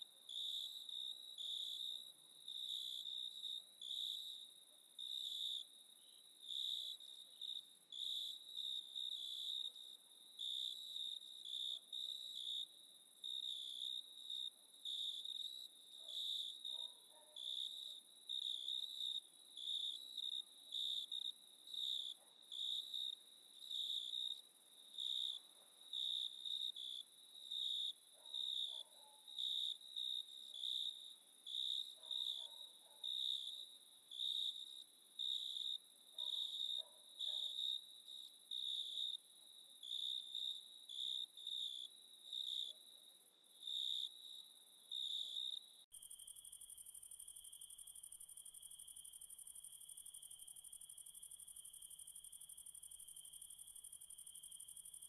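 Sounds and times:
crickets chirping: 17.4s - 55.0s.

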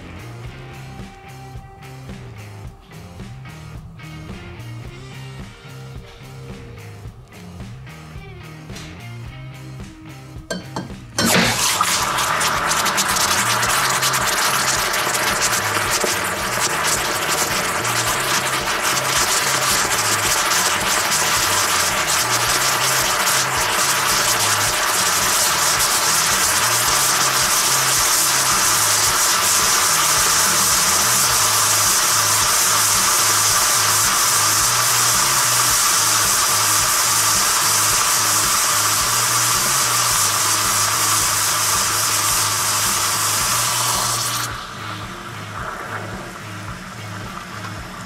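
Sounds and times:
background music with bass line: 0.0s - 48.0s
hot metal hissing in toothpaste: 11.2s - 48.0s.

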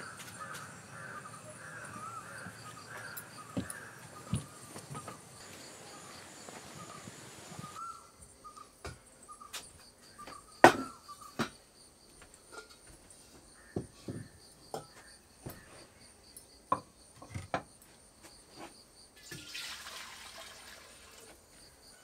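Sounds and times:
birds chirping: 0.0s - 11.4s
insects chirring: 0.0s - 22.0s.

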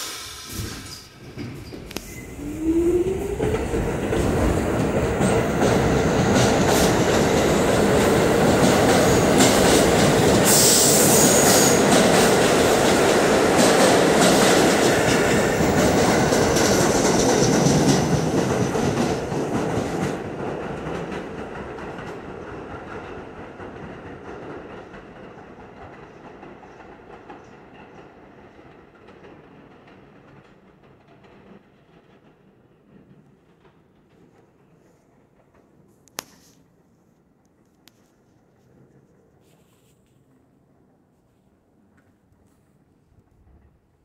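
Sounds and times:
train wheel squeal: 0.0s - 3.4s, 8.8s - 12.0s
subway train motors whining: 0.0s - 21.8s
train wheels rattling: 0.0s - 35.9s.

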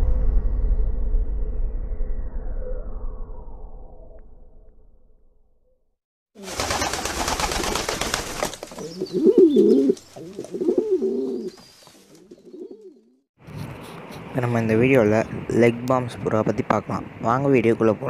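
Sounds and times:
pigeon cooing: 8.8s - 13.1s.

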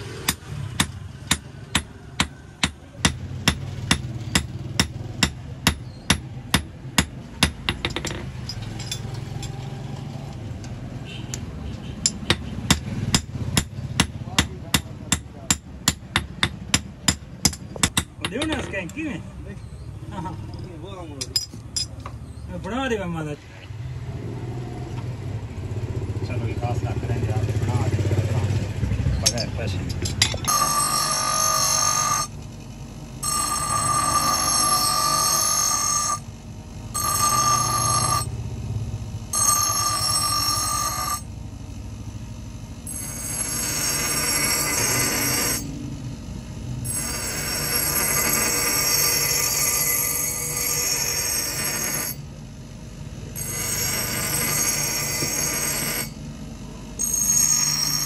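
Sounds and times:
hammer striking metal on anvil: 0.2s - 9.1s, 12.0s - 18.7s, 29.2s - 32.3s, 39.4s - 41.2s
grinder screeching on steel: 30.4s - 32.4s, 33.2s - 36.3s, 37.0s - 38.3s, 39.3s - 41.3s, 42.9s - 45.7s, 46.8s - 52.2s, 53.4s - 56.2s, 57.0s - 58.0s
grinder motor humming: 30.4s - 52.3s, 53.3s - 58.0s.

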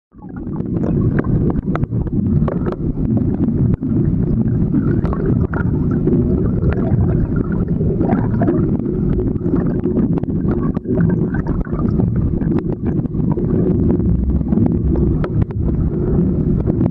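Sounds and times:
muffled underwater water rumble: 0.1s - 16.9s.

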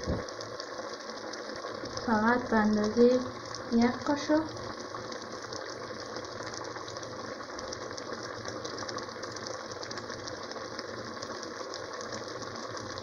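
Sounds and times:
syrup bubbling in a pot: 0.0s - 13.0s.

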